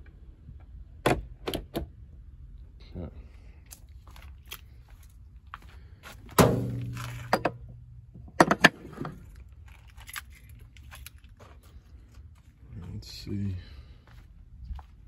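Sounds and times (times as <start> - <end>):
charging connector heavy clunk: 6.3 - 7.7.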